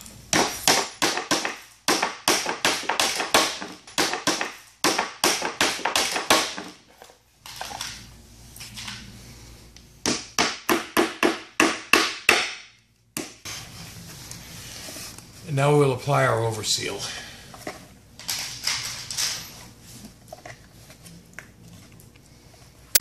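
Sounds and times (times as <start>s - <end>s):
hammer driving nails through metal: 0.3s - 6.7s.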